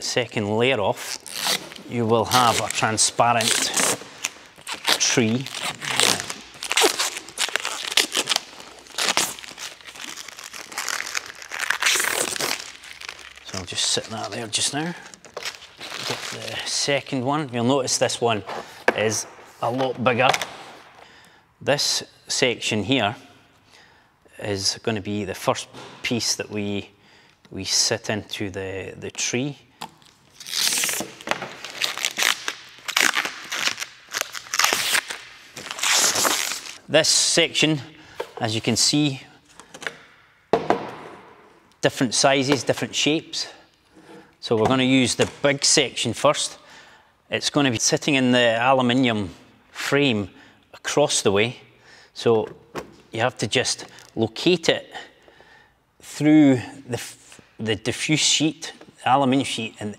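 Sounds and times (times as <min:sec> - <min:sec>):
protective film peeling off plastic: 0:01.0 - 0:16.7, 0:29.8 - 0:36.8.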